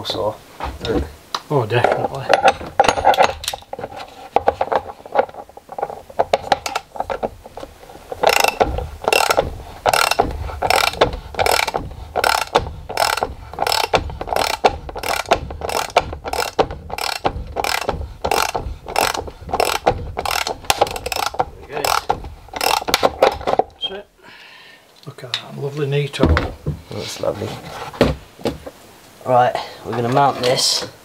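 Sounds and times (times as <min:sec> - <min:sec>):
ratchet wrench clicking: 0:08.2 - 0:23.1.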